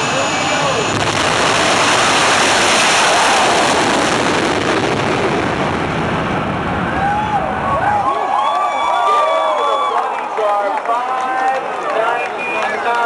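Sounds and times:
jet engine roar: 0.0 - 10.4.

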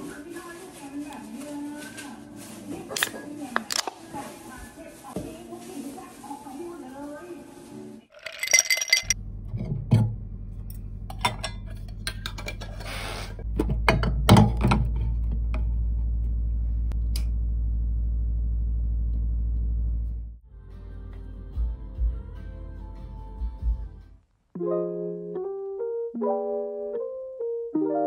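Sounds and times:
glass jar knocks and clinks: 8.2 - 9.2.

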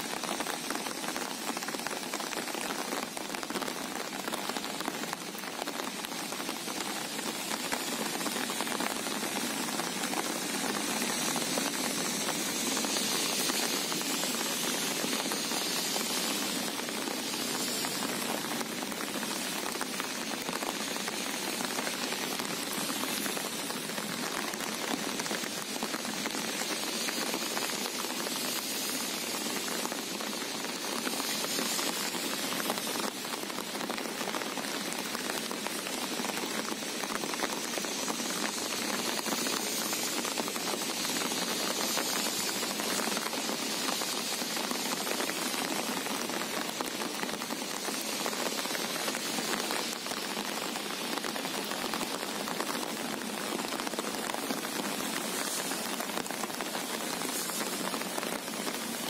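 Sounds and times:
rain falling on sea: 0.0 - 59.0.

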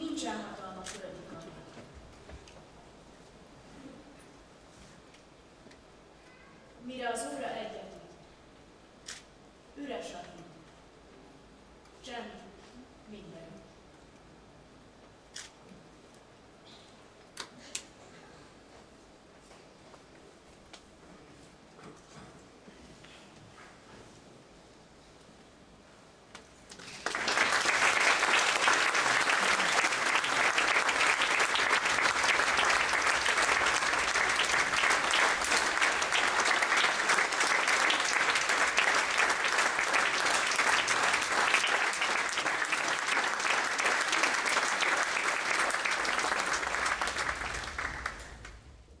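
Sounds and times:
audience applauding: 26.7 - 48.7.

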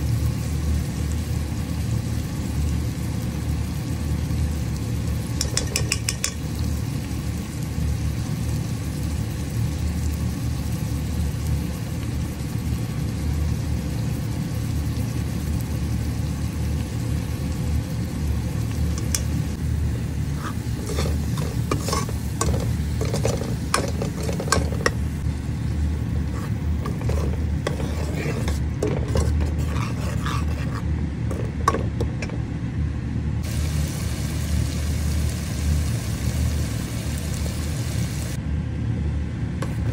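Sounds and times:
ladle scraping a steel pot: 20.4 - 25.0, 26.2 - 31.5.

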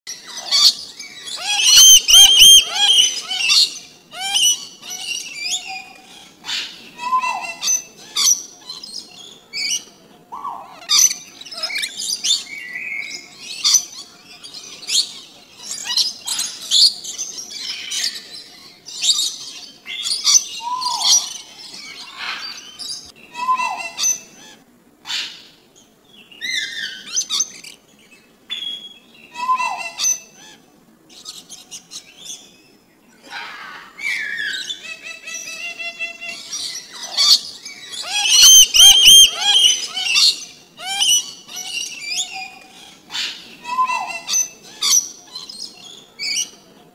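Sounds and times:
parrot and birds calling: 0.1 - 46.8.

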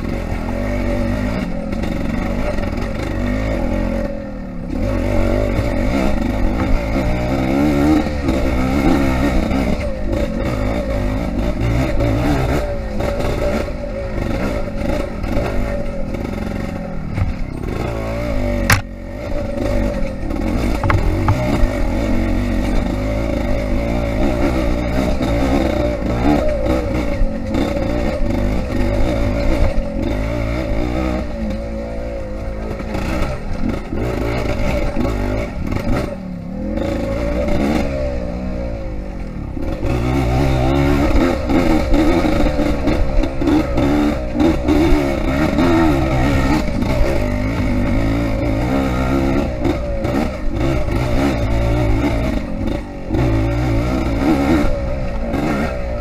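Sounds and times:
dirt bike engine revving: 0.0 - 56.0.

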